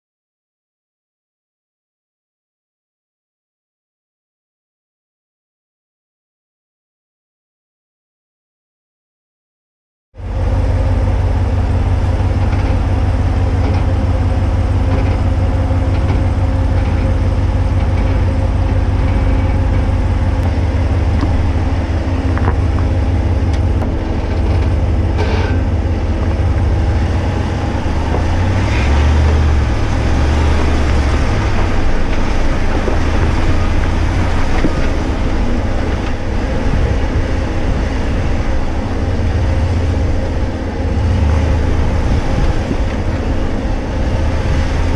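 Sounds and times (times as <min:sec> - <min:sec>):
pickup engine rumble: 0:10.2 - 0:44.9.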